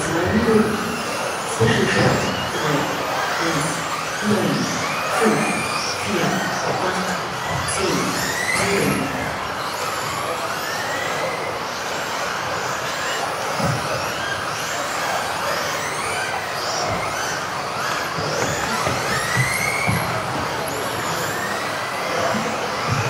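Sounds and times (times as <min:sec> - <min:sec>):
rc car motors whining: 0:00.0 - 0:23.0
tyres rushing on floor: 0:06.7 - 0:23.0.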